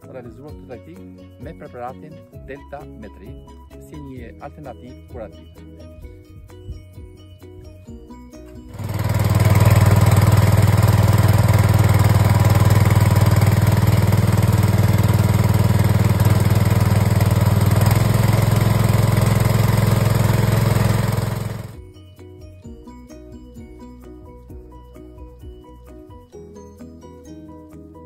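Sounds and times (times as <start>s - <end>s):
motorized sprayer pump running: 8.7s - 21.8s.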